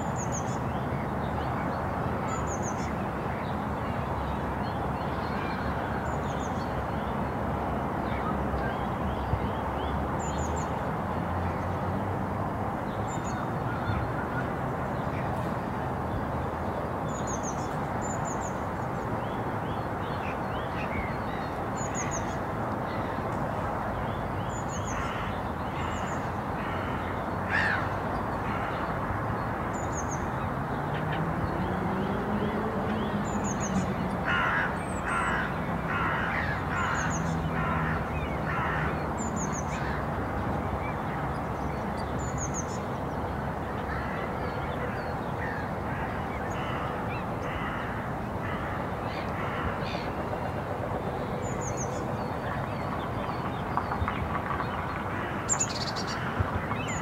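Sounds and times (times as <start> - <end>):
distant hum of wind and town: 0.0 - 57.0
crow cawing: 34.2 - 38.9.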